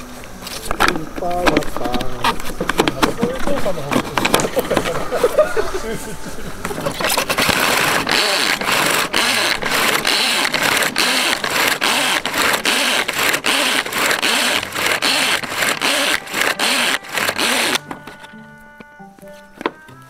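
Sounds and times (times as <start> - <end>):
pull-cord chopper whirring: 6.7 - 18.3.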